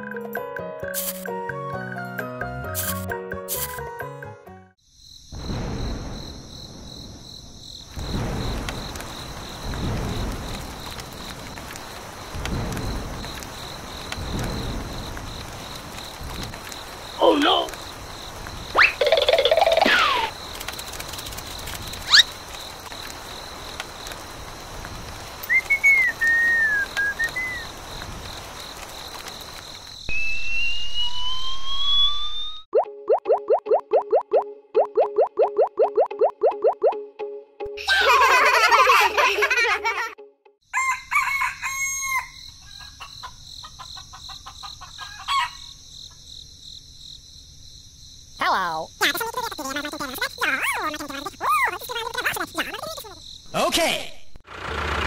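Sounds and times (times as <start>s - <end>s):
high-pitched insect buzz: 0.9s - 1.3s, 2.8s - 3.8s
gliding whistled notes: 25.5s - 27.7s, 30.1s - 32.7s
rising whistle: 25.5s - 27.7s, 30.1s - 32.7s
chicken loud call: 40.8s - 42.9s, 44.9s - 45.7s.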